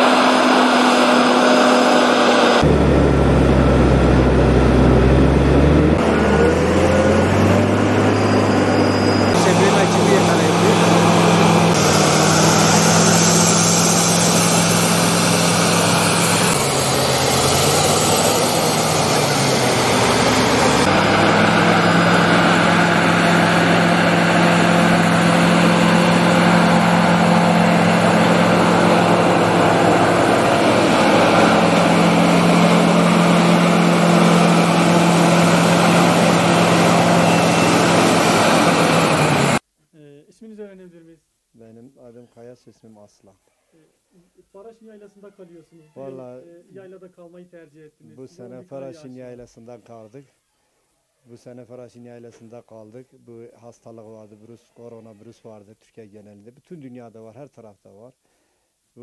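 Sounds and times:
heavy diesel engine running: 0:00.0 - 0:39.6.

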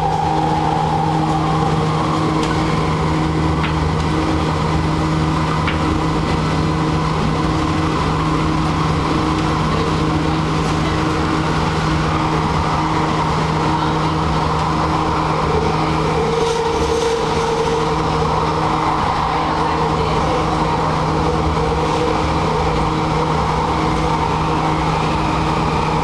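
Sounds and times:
passing train: 0:00.0 - 0:26.0
steady tones: 0:00.0 - 0:26.0
train car humming on rails: 0:00.0 - 0:26.0.

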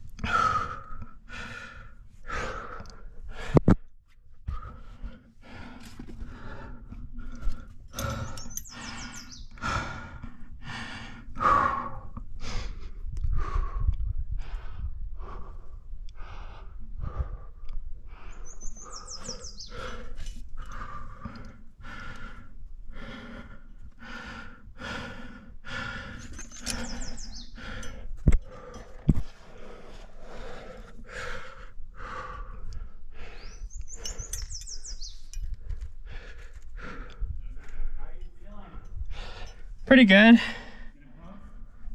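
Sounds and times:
hard rhythmic breathing: 0:00.0 - 0:41.9
bird whistled song: 0:08.2 - 0:09.6, 0:18.3 - 0:20.0, 0:26.5 - 0:27.6, 0:33.4 - 0:35.4.

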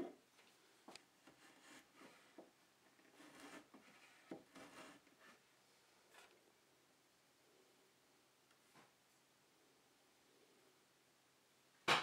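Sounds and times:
faint scrapes: 0:01.3 - 0:06.5.

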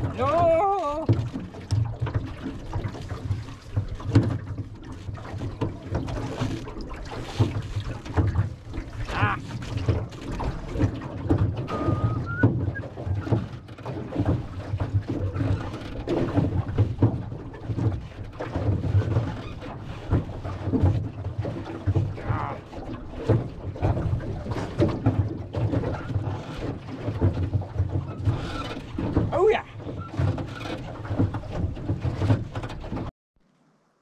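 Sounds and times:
oar blades splashing: 0:00.0 - 0:33.1
oars knocking in oarlocks: 0:00.0 - 0:33.1
short squeaks: 0:11.6 - 0:12.8.

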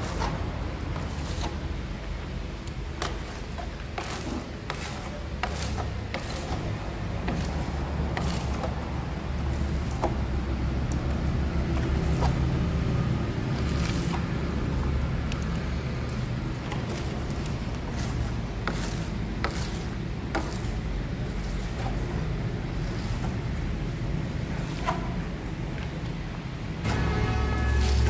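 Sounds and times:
low mechanical hum: 0:00.0 - 0:28.0
scrapes and light clicks: 0:00.1 - 0:01.6, 0:02.6 - 0:08.8, 0:13.5 - 0:23.4.

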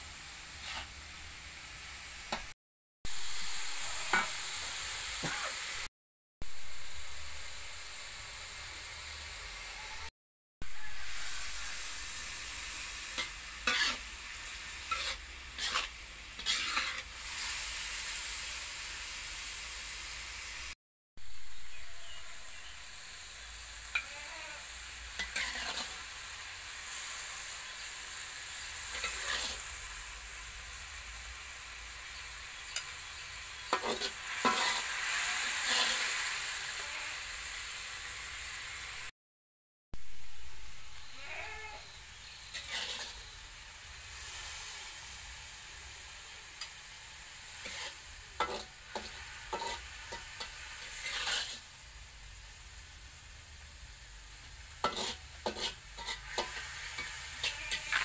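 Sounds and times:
food sizzling in a wok: 0:00.0 - 0:39.2, 0:40.0 - 0:58.0
metal spatula scraping a wok: 0:00.5 - 0:01.0, 0:10.7 - 0:18.7, 0:23.8 - 0:30.0, 0:32.6 - 0:36.8, 0:41.0 - 0:43.5, 0:46.6 - 0:51.8, 0:54.4 - 0:58.0.

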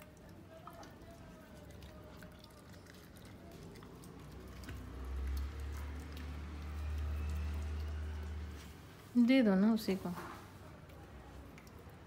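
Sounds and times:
dog eating from bowl: 0:00.0 - 0:08.7.

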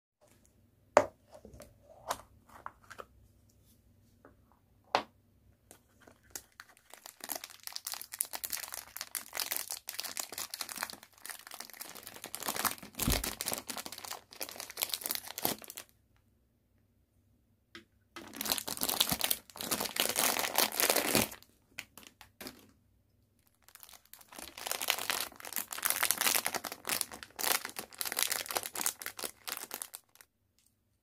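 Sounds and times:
plastic packaging crinkling: 0:06.0 - 0:15.9, 0:18.2 - 0:22.7, 0:23.4 - 0:30.2.

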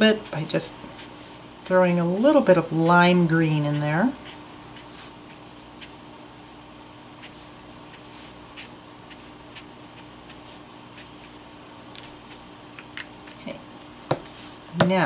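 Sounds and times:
steady low hum: 0:00.0 - 0:15.0
marker scratching on paper: 0:02.8 - 0:06.0, 0:07.2 - 0:11.4, 0:12.0 - 0:12.5.

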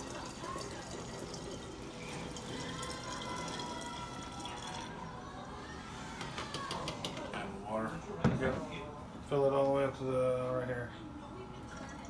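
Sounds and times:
water pouring into a glass jug: 0:00.0 - 0:05.2, 0:11.6 - 0:12.0.

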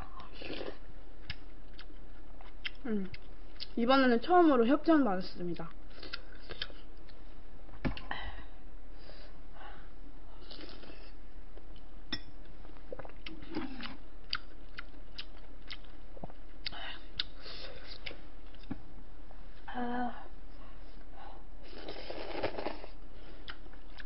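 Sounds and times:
chewing and mouth smacks: 0:12.7 - 0:18.8.

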